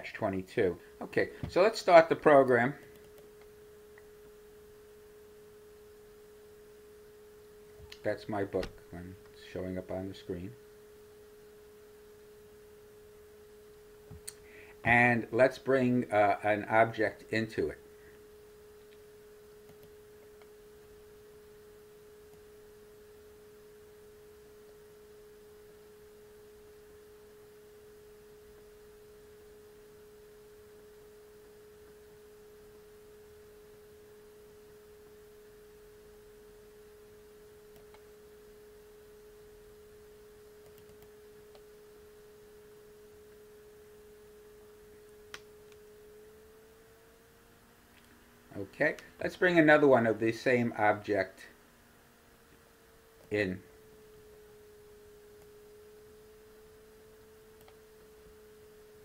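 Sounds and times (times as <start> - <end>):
faint steady tone: 0.0 - 59.0
click: 2.5 - 4.1, 14.1 - 14.4, 19.6 - 20.5, 37.7 - 38.1, 40.6 - 41.7, 45.3 - 45.8, 47.9 - 48.2, 57.6 - 57.8.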